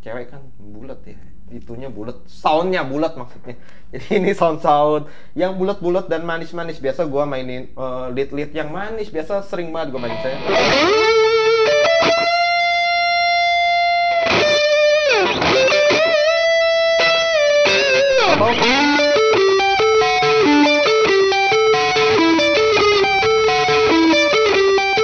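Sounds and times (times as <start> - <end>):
electric guitar lead with drive: 10.0 - 25.0.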